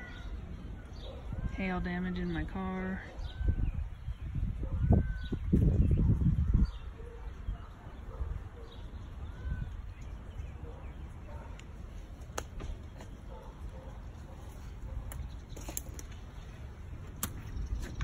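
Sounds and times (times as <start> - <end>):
sharp clicks: 17.1 - 18.0.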